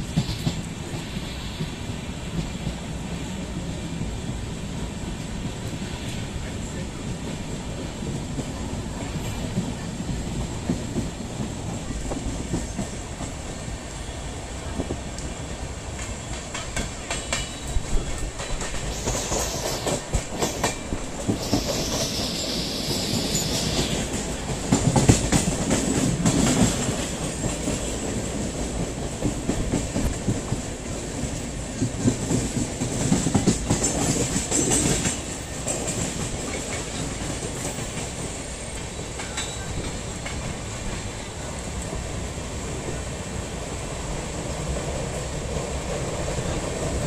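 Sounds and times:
train rumbling on rails: 0.0s - 47.0s
wheels clacking over rail joints: 14.8s - 22.3s, 23.0s - 42.0s
high hiss: 18.6s - 24.7s.

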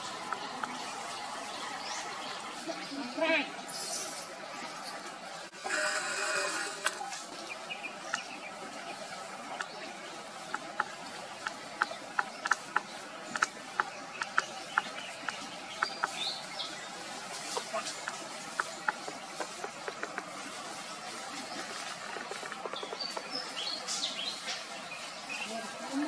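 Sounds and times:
steady outdoor hiss: 0.0s - 26.0s
sharp dry clicks: 10.5s - 16.2s.

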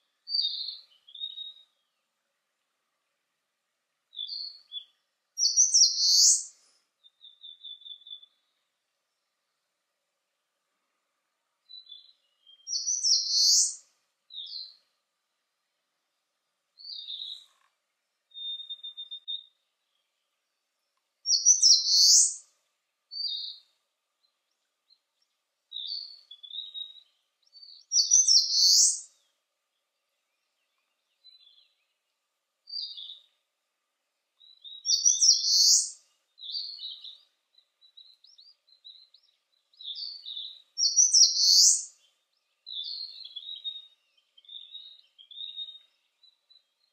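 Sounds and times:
faint high bird chirps: 0.0s - 2.1s, 4.1s - 9.4s, 11.6s - 15.0s, 16.7s - 33.5s, 34.3s - 46.9s
bird singing loud high phrase: 4.1s - 8.5s, 11.7s - 14.7s, 21.3s - 22.4s, 25.7s - 29.3s, 34.4s - 46.9s.

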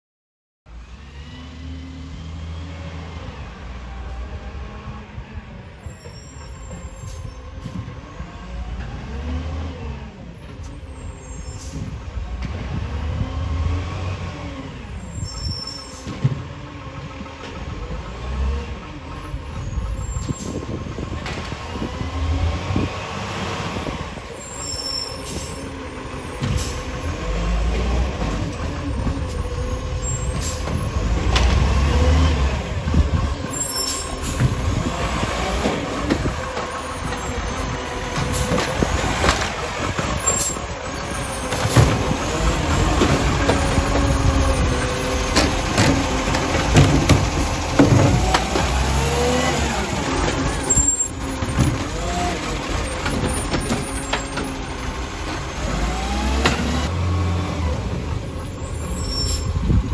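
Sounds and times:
hydraulics whining: 0.8s - 59.9s
knocks and squeals from bins: 5.8s - 7.9s, 10.4s - 12.0s, 15.0s - 16.5s, 19.2s - 21.4s, 23.8s - 27.1s, 28.2s - 31.8s, 33.4s - 56.8s, 58.2s - 59.9s
diesel engine revving: 6.6s - 59.9s.

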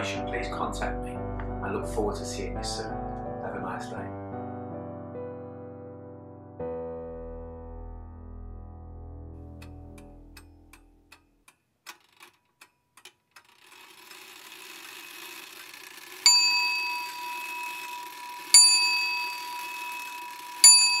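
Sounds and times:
bell dings: 16.2s - 21.0s.

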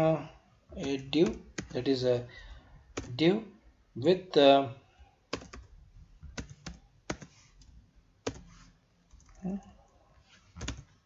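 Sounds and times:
computer keyboard typing: 0.8s - 1.9s, 2.9s - 3.2s, 5.3s - 5.7s, 6.3s - 9.6s, 10.6s - 11.0s.

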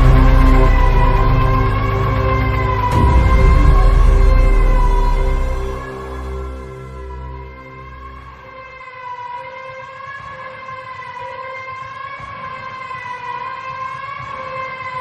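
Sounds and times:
bass pulses: 0.0s - 8.7s.

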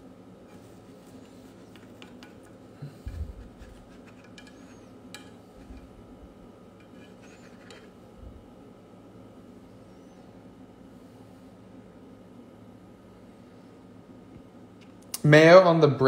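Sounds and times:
spatula scraping frying pan: 3.1s - 5.9s, 6.8s - 8.0s.

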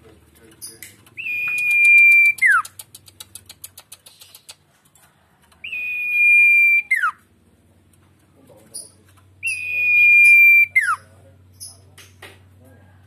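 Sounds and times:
dry rapid ticks: 0.4s - 5.7s
songbird whistling: 1.2s - 2.8s, 5.6s - 7.2s, 9.4s - 11.1s.

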